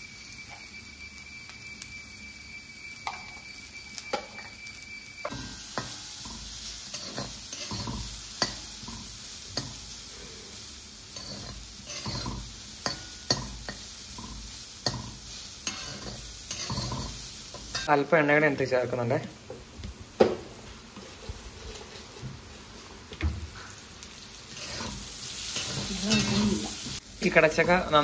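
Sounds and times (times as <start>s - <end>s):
frying sizzle: 0.0s - 28.0s
spoon scraping and knocking pan: 5.2s - 9.8s, 11.1s - 17.9s, 24.5s - 27.0s.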